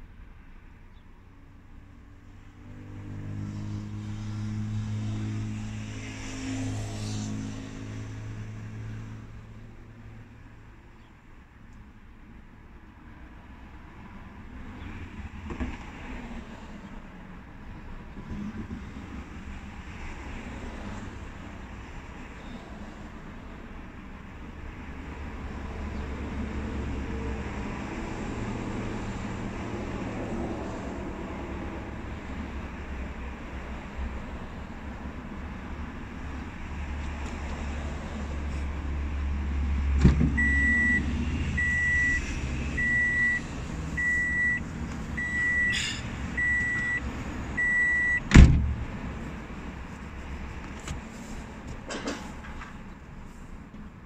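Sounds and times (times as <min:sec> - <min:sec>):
car warning chime beeping: 0:40.3 - 0:48.3
loud thump: 0:48.2 - 0:49.0.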